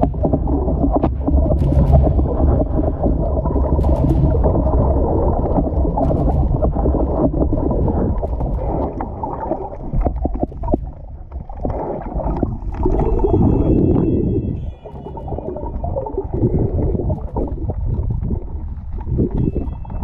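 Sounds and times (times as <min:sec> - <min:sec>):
sharp clicks and knocks: 0:00.0 - 0:09.1
muffled underwater rumble: 0:00.0 - 0:20.0
water gurgling: 0:00.0 - 0:20.0.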